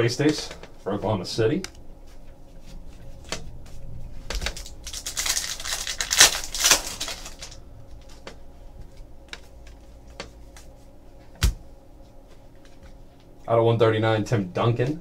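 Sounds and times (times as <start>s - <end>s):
wrapper crinkling and tearing: 4.4s - 7.6s.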